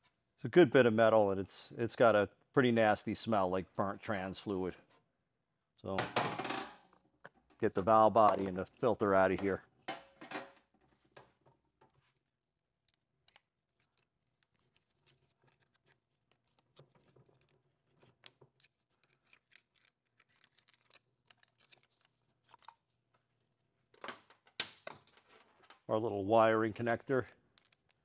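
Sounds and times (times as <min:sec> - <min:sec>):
faint clicks and scrapes of hands: 0:10.7 - 0:24.0, 0:27.3 - 0:28.0.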